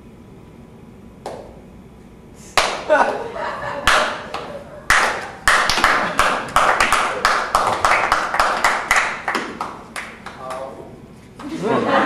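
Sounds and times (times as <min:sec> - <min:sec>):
people clapping: 0:02.5 - 0:10.8.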